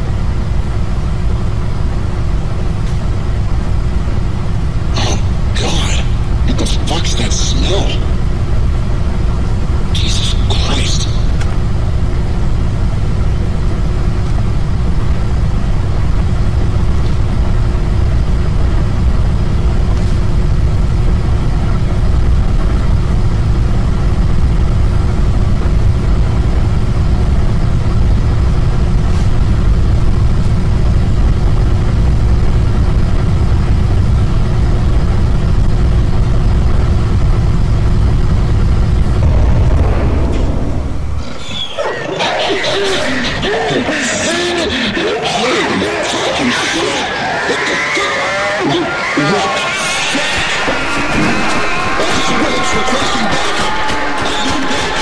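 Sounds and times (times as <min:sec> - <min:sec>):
loud low rumble: 0:00.0 - 0:44.0
constant hum tone: 0:00.0 - 0:54.9.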